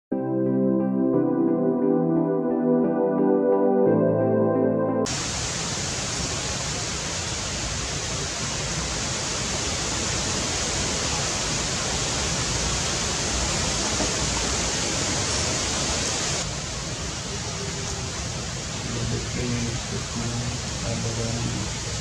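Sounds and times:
steady rain falling: 0:05.1 - 0:22.0.

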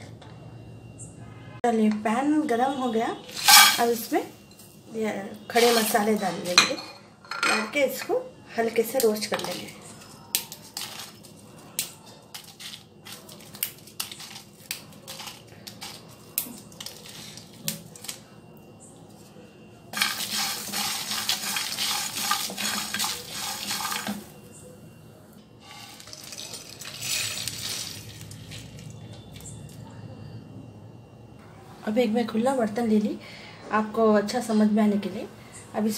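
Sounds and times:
spatula stirring spices in pan: 0:03.4 - 0:03.8, 0:20.0 - 0:24.4.

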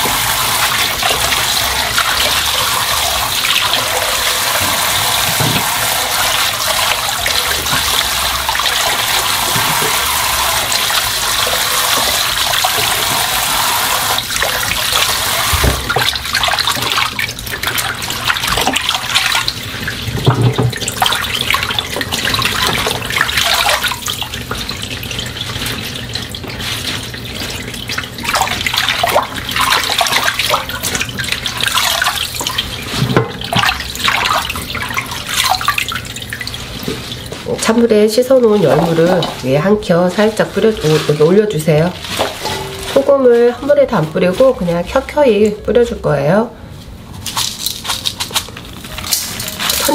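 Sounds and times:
tap running into bowl: 0:00.0 - 0:06.3, 0:07.0 - 0:17.1, 0:20.1 - 0:24.8, 0:28.4 - 0:34.8
water splashing and swishing: 0:00.0 - 0:45.2.

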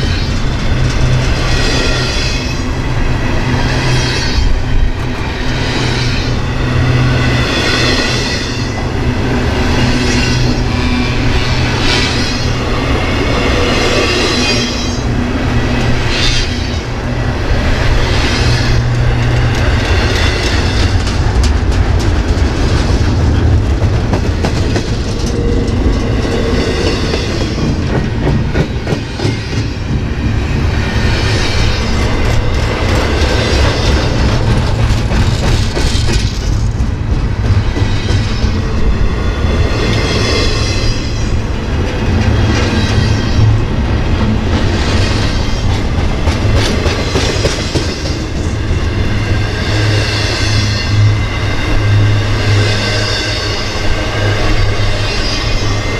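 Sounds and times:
freight train rolling past: 0:00.0 - 0:55.9
wheels clacking on rails: 0:00.0 - 0:55.9.

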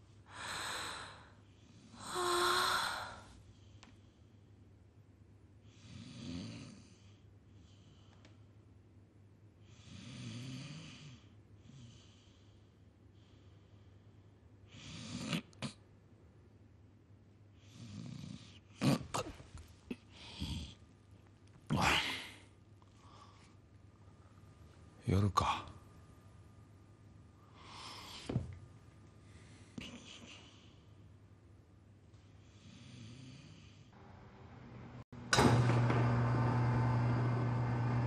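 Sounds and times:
person gasping and moaning: 0:02.0 - 0:03.3.

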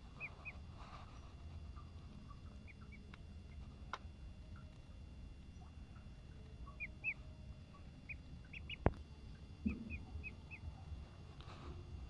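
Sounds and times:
duckling peeping: 0:00.0 - 0:04.0, 0:05.5 - 0:11.2
low steady background: 0:00.0 - 0:12.0.

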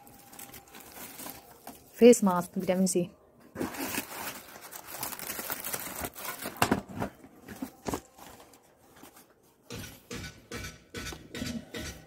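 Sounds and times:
cardboard rustling and scraping: 0:03.5 - 0:09.6.

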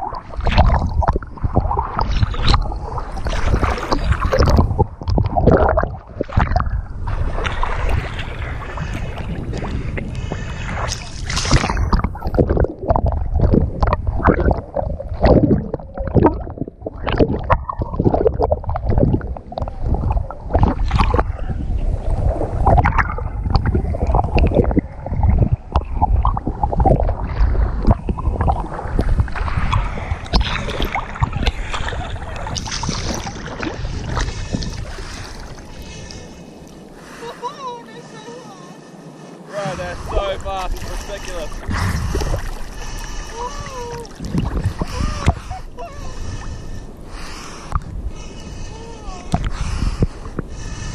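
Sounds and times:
water sloshing and splashing: 0:00.0 - 0:50.9
heavy low rumble: 0:39.6 - 0:50.5.

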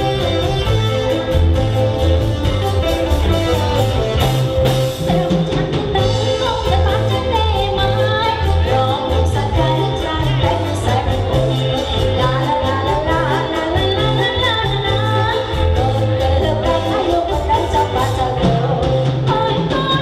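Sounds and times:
person singing: 0:05.0 - 0:20.0.

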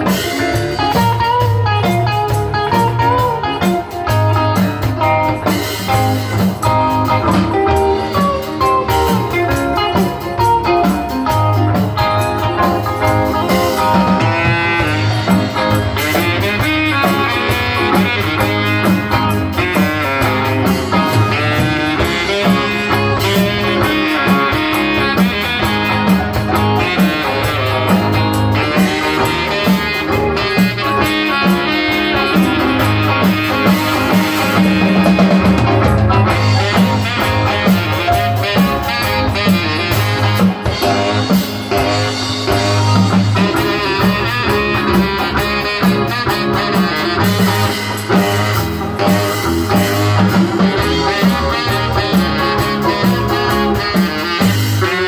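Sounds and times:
drum kit: 0:00.0 - 0:55.0
electric guitar: 0:00.0 - 0:55.0
repeating bass line: 0:00.0 - 0:55.0
saxophone lead: 0:00.0 - 0:55.0.

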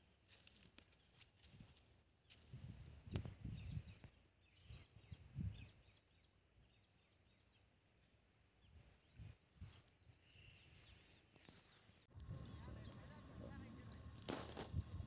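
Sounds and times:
distant bird chirps: 0:10.0 - 0:14.2.

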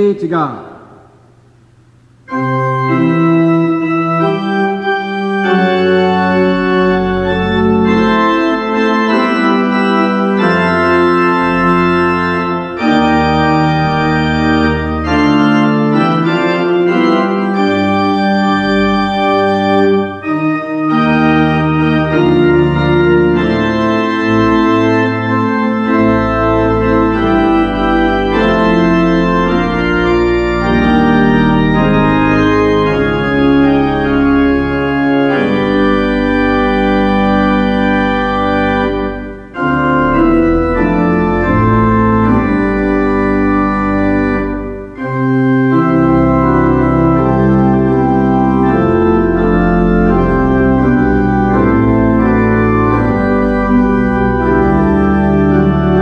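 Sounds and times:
church organ chords: 0:00.0 - 0:56.0.

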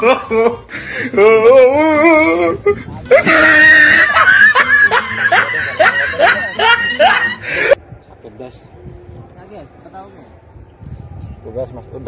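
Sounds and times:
person laughing loudly: 0:00.0 - 0:07.8.

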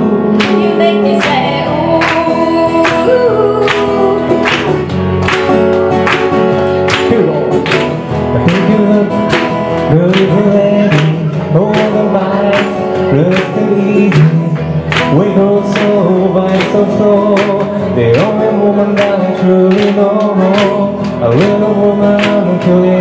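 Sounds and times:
man singing: 0:00.0 - 0:04.5, 0:06.8 - 0:23.0
acoustic guitar and ukulele strumming: 0:00.0 - 0:23.0.

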